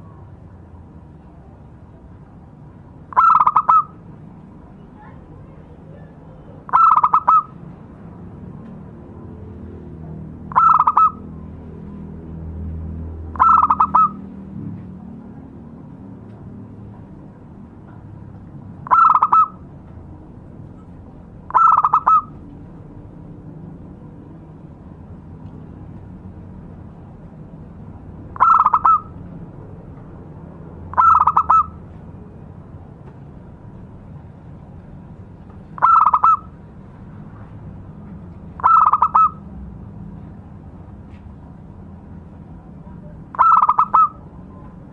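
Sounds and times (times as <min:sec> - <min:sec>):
dove cooing: 0:03.1 - 0:03.9, 0:06.7 - 0:07.5, 0:10.5 - 0:11.3, 0:13.4 - 0:14.2, 0:18.9 - 0:19.6, 0:21.5 - 0:22.4, 0:28.4 - 0:29.1, 0:30.9 - 0:31.8, 0:35.8 - 0:36.5, 0:38.6 - 0:39.4, 0:43.4 - 0:44.2.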